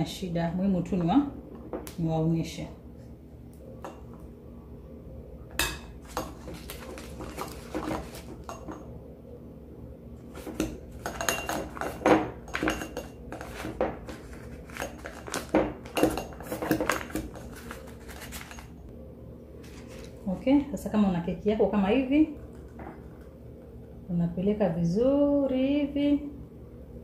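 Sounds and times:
plastic spoon scraping glass bowl: 0:10.4 - 0:18.7.

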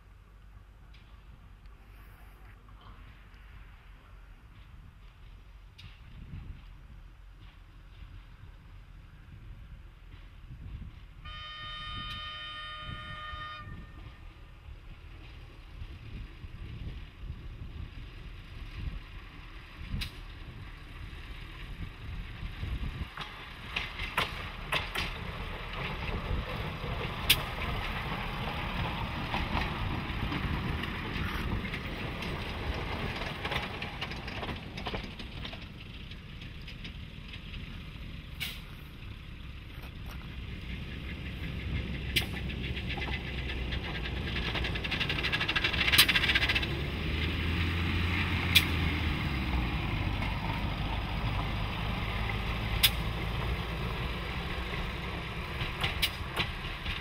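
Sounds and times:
rail vehicle engine and wheels: 0:00.0 - 0:57.0
rail vehicle horn blast: 0:11.2 - 0:14.2
sharp wheel clicks on rails: 0:23.2 - 0:26.1, 0:41.8 - 0:46.8, 0:52.7 - 0:53.4, 0:55.6 - 0:57.0.

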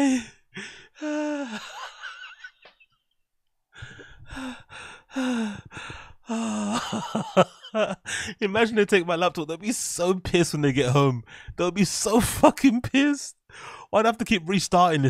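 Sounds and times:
man laughing: 0:01.4 - 0:02.9, 0:06.3 - 0:08.3.

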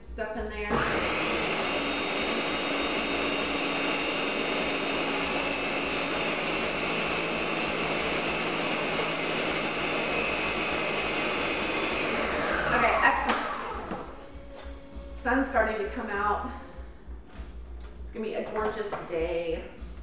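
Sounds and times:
blender whirring: 0:00.7 - 0:14.2.

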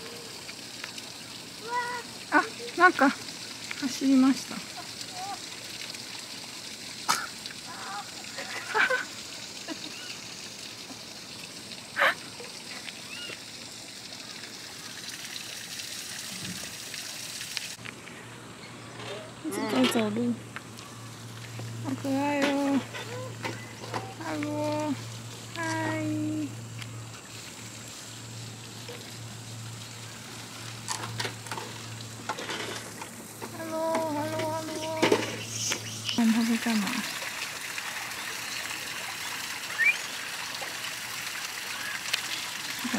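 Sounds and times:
outdoor hiss: 0:00.0 - 0:42.9
faint chirping calls: 0:34.7 - 0:36.4, 0:39.2 - 0:40.1
sharp animal calls: 0:39.6 - 0:40.1.

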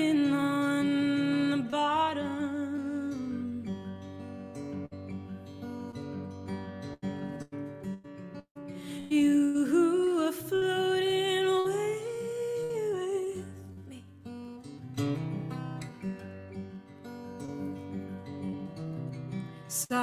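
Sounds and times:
person singing wordlessly: 0:00.0 - 0:03.8, 0:09.0 - 0:14.0, 0:19.7 - 0:20.0
acoustic guitar playing: 0:00.0 - 0:20.0.

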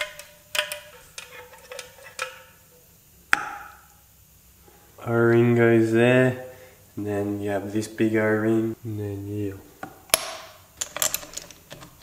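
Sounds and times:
metal tools clinking: 0:00.0 - 0:02.4, 0:10.8 - 0:12.0
faint ringing: 0:00.0 - 0:09.6.

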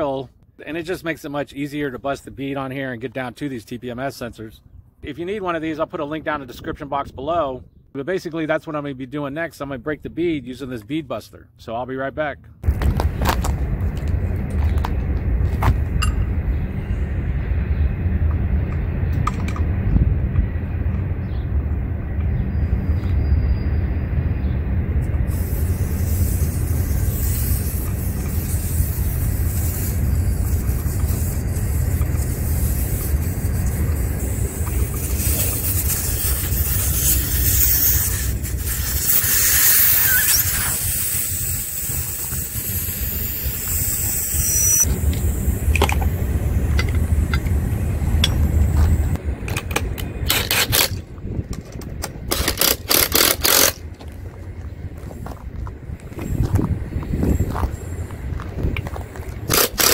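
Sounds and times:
air hissing from tyre: 0:24.4 - 0:49.2
cordless drill bursts: 0:52.3 - 0:53.8, 0:59.5 - 0:59.9.

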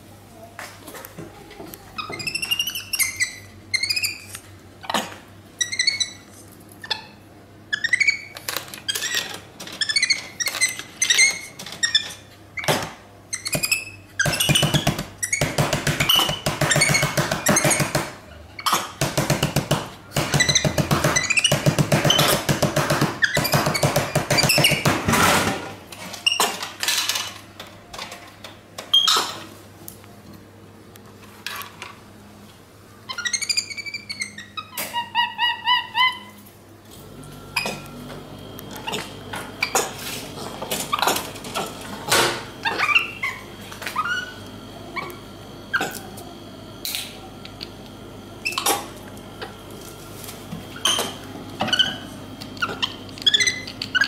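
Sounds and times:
monkey chirps and squeaks: 0:02.0 - 0:12.7, 0:13.3 - 0:17.9, 0:20.3 - 0:22.4, 0:23.2 - 0:24.8, 0:33.1 - 0:36.4, 0:42.6 - 0:44.4, 0:50.8 - 0:54.0.

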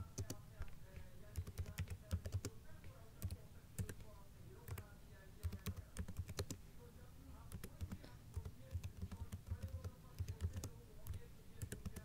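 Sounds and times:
typing on computer keyboard: 0:01.3 - 0:02.5, 0:03.2 - 0:04.1, 0:05.4 - 0:06.6, 0:07.5 - 0:12.0.

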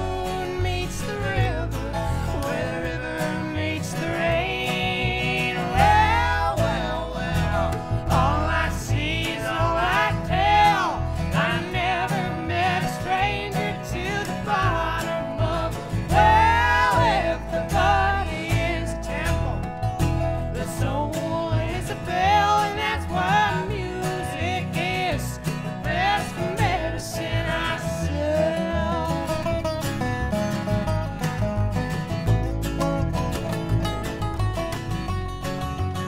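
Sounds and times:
woman singing: 0:00.0 - 0:19.6, 0:20.6 - 0:29.4
man singing harmony: 0:00.0 - 0:19.7, 0:20.4 - 0:29.5
acoustic guitar: 0:00.0 - 0:36.0
resonator guitar: 0:00.0 - 0:36.0
upright bass: 0:00.0 - 0:36.0.

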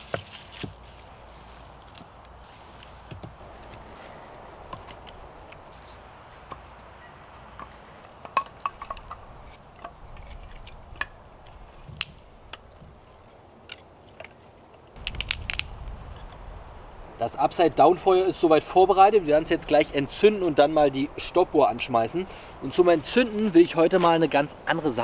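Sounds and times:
dry twigs snapping: 0:00.0 - 0:06.7, 0:07.5 - 0:17.0
sticks clacking: 0:07.5 - 0:14.4, 0:15.0 - 0:15.8.

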